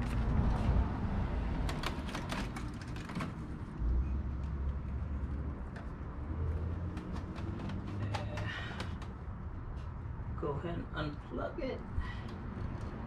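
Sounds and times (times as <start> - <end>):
plastic panel clicks and rattles: 1.6 - 3.6.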